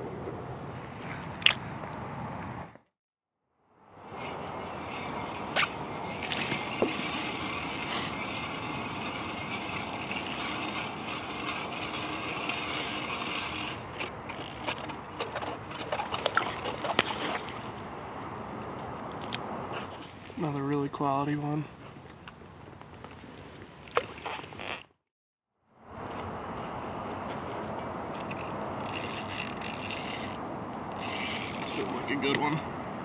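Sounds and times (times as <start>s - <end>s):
fishing reel gears whirring: 5.5s - 14.9s, 28.0s - 32.6s.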